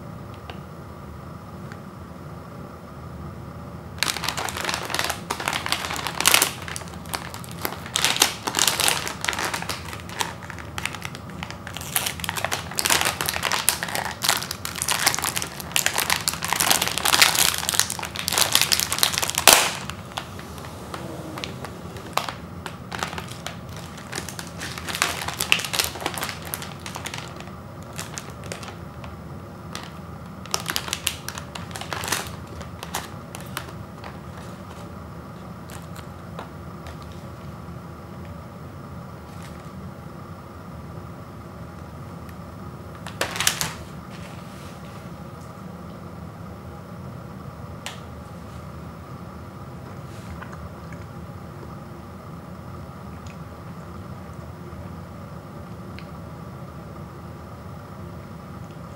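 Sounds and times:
plastic wrapper crinkling: 4.0s - 37.3s, 43.0s - 43.9s.

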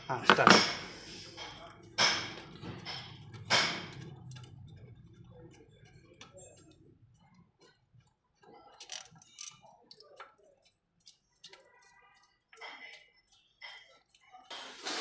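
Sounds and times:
metallic clicking and tapping: 1.4s - 14.2s.

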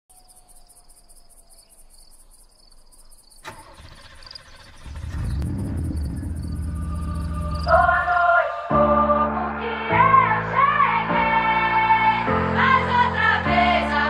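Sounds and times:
deep bass: 5.0s - 8.2s.

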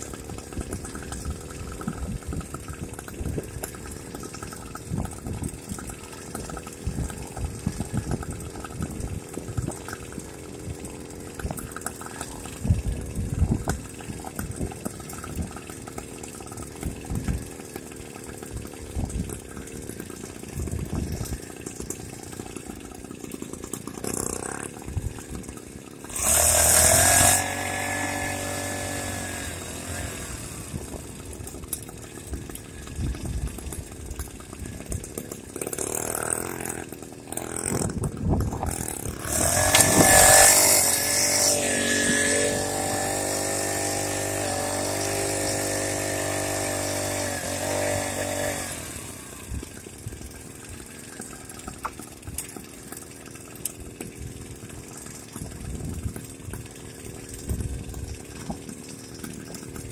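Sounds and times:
small motorbike engine revving: 22.6s - 33.7s, 34.8s - 49.7s.

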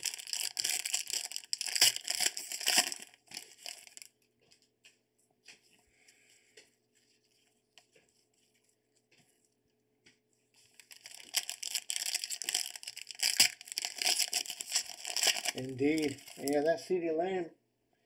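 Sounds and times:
foil wrapper tearing and crinkling: 0.0s - 4.1s, 10.7s - 16.7s.

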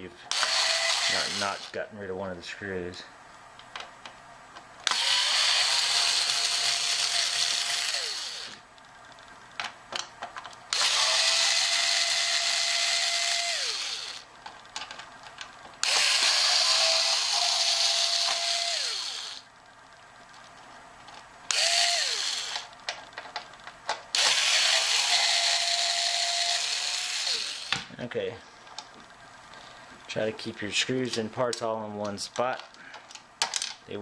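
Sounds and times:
cordless screwdriver whine: 0.3s - 1.7s, 4.8s - 8.6s, 10.7s - 14.3s, 15.8s - 19.4s, 21.5s - 22.7s, 24.1s - 27.8s.

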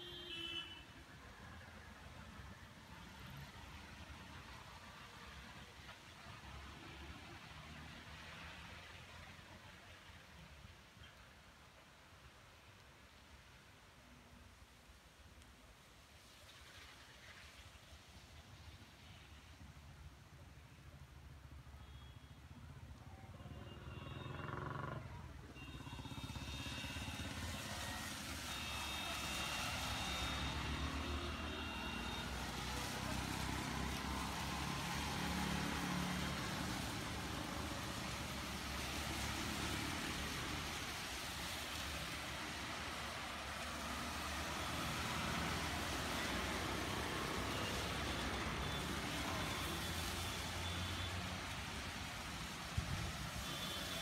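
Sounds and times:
tyres hissing on wet road: 0.1s - 14.4s, 15.2s - 21.0s, 25.6s - 54.0s
rain falling: 0.7s - 21.2s, 22.8s - 54.0s
vehicle engines: 22.6s - 54.0s.

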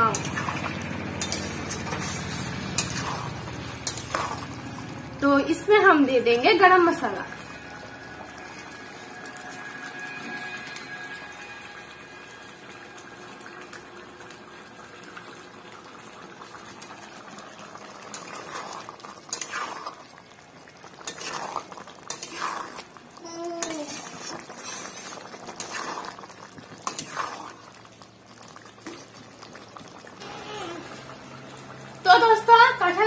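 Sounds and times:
metal spoon scraping a pan: 0.0s - 4.5s, 19.3s - 19.8s, 21.0s - 22.8s, 23.6s - 26.1s, 26.8s - 27.6s
curry bubbling in a pan: 0.0s - 33.0s.

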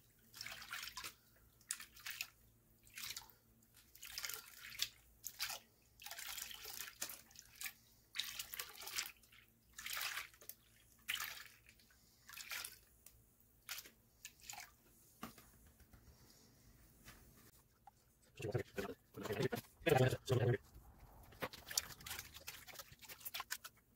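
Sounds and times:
water sloshing in a pan: 0.0s - 13.0s, 21.2s - 23.9s.

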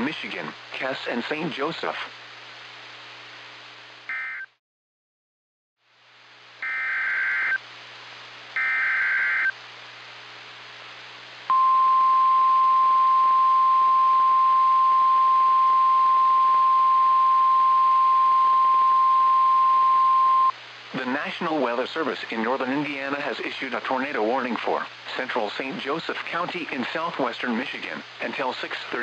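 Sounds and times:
receiver hiss: 0.0s - 4.5s, 5.8s - 29.0s
steady alarm tone: 6.6s - 7.6s, 8.6s - 9.5s
warbling two-tone data buzz: 8.6s - 9.6s.

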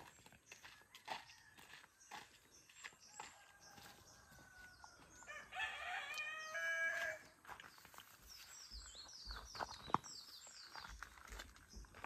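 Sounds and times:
rooster crowing: 3.4s - 7.3s.

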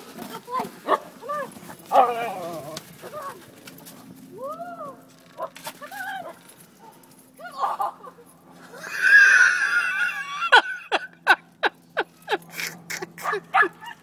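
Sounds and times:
woman screaming: 8.8s - 10.6s.

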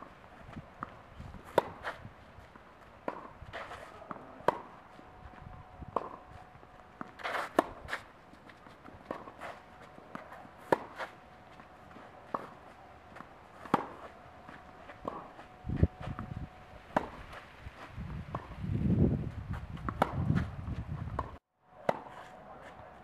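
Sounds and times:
tennis ball hitting racket strings: 0.8s - 2.0s, 3.0s - 4.8s, 5.9s - 16.3s, 16.9s - 17.5s
tennis ball bouncing: 0.8s - 17.4s, 19.5s - 22.3s.

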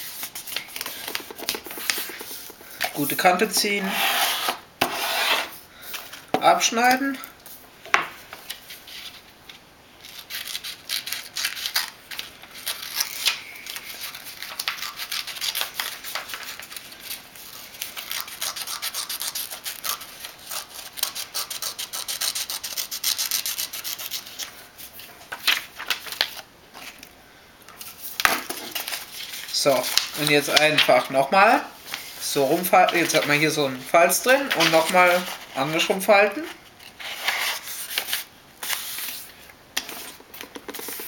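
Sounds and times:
paper rustling: 0.0s - 5.0s, 10.0s - 18.5s, 24.2s - 27.0s, 27.8s - 31.2s, 31.8s - 41.0s
scissors cutting paper: 0.8s - 3.2s, 10.0s - 16.9s, 17.9s - 24.4s.

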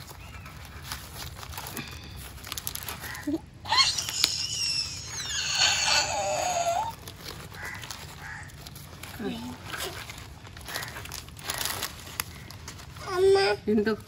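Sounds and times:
leaf parcel crinkling unwrapped: 0.0s - 14.0s
small child squealing: 3.0s - 7.0s.

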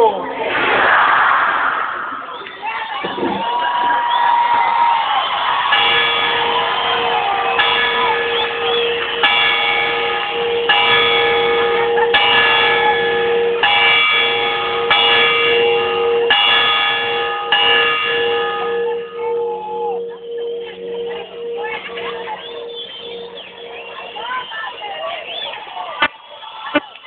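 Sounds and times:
large bell ringing: 4.7s - 26.0s.

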